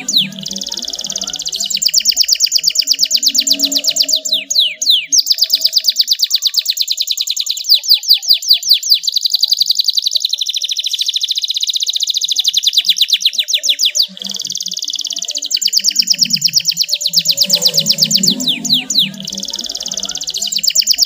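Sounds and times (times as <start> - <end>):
canary trilling song: 0.0 - 21.0.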